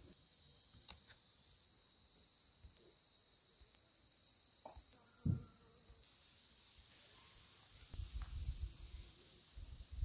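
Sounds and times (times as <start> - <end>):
soft thump: 5.2 - 5.5.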